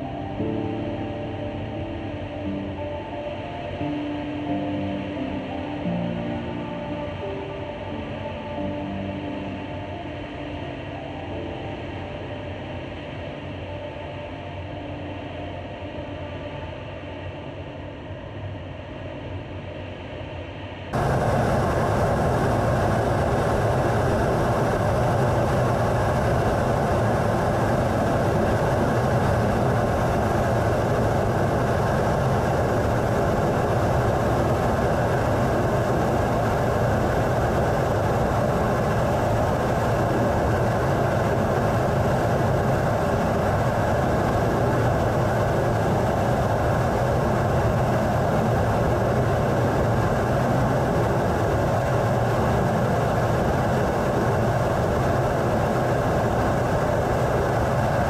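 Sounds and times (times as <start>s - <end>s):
jet aircraft in-flight noise: 20.9s - 58.0s.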